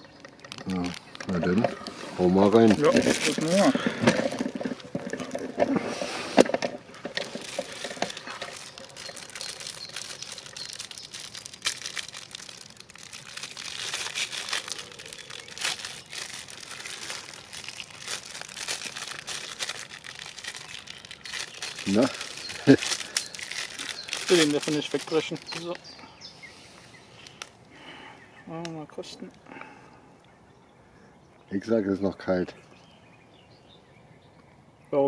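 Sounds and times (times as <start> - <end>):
packaging crinkling and rustling: 0.0 - 25.8.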